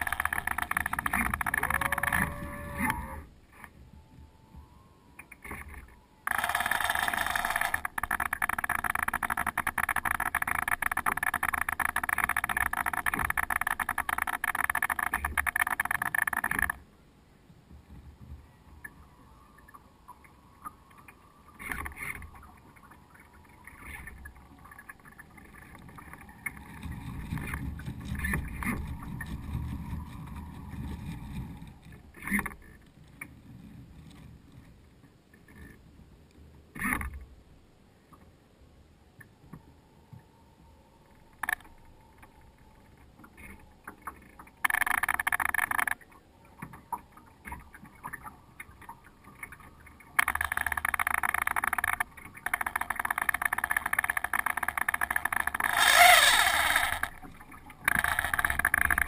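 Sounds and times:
sharp ticks: 0.0 - 2.3, 6.3 - 16.8, 44.6 - 46.0, 50.2 - 59.0
wind rumble on microphone: 0.0 - 6.2, 25.3 - 37.5
water lapping along hull: 0.0 - 59.0.

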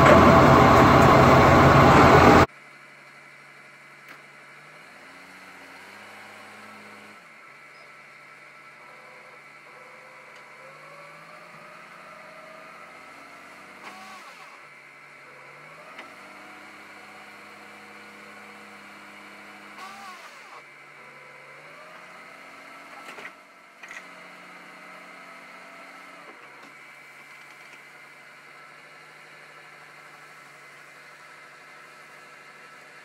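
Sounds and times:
hydraulic hoist whine: 0.0 - 2.5, 13.6 - 14.7, 19.5 - 22.1
truck engine running: 0.0 - 4.6.

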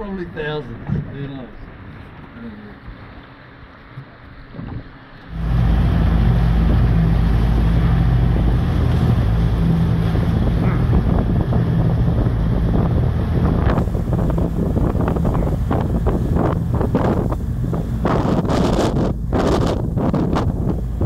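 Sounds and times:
boat engine running: 0.0 - 21.0
water rushing past: 0.0 - 21.0
wind on microphone: 4.5 - 21.0.

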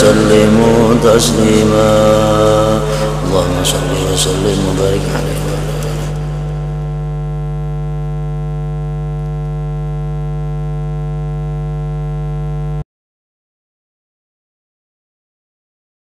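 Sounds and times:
electronic hum with low buzz: 0.0 - 12.8.

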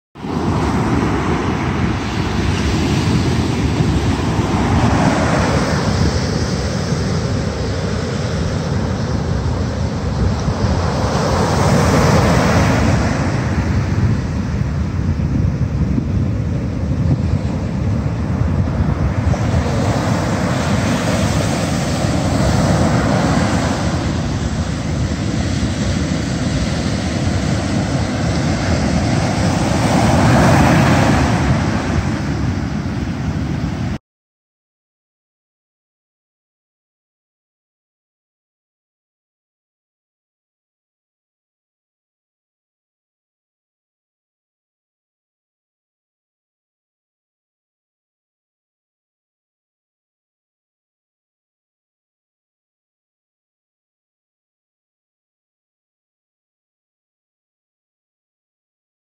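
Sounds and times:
ocean surf breaking: 0.2 - 34.0
wind noise on microphone: 0.2 - 34.0.

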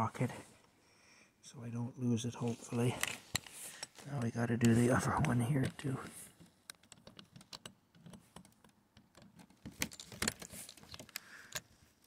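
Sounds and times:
screwdriver clicking and scraping: 2.7 - 11.7.

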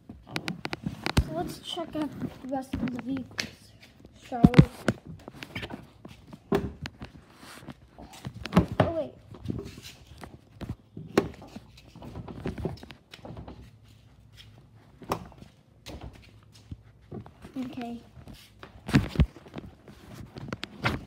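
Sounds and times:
footsteps: 0.0 - 21.0
knocks and thumps of handling noise: 4.2 - 13.7, 18.6 - 21.0.

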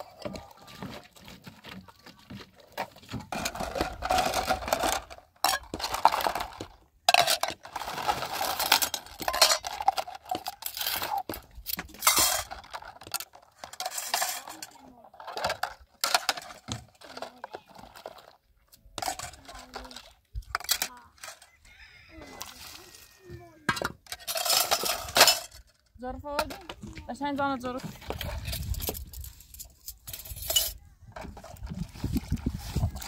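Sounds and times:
metal bowls clinking: 8.6 - 11.2, 12.0 - 12.8, 23.7 - 25.6.

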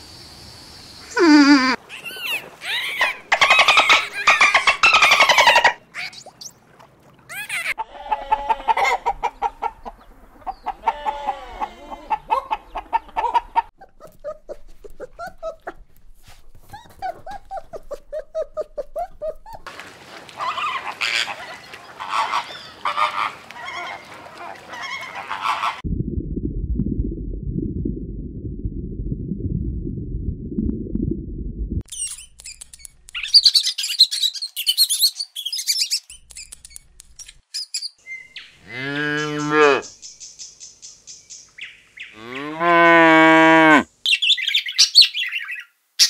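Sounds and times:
puppy whining and yipping: 13.8 - 15.8, 16.6 - 19.7
flamingos honking: 20.4 - 25.8
dolphin whistles and clicks: 31.9 - 38.0.

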